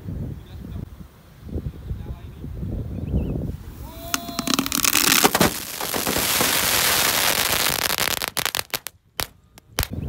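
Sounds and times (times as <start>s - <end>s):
fireworks hissing and crackling: 3.5s - 10.0s
fireworks sharp bangs: 4.2s - 10.0s.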